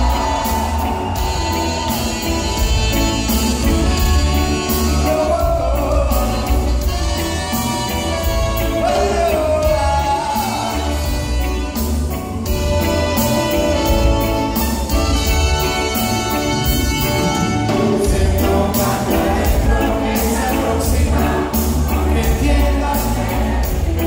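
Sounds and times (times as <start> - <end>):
heavy bass: 0.0 - 24.0
live reggae band playing: 0.0 - 24.0
person singing: 8.6 - 11.6.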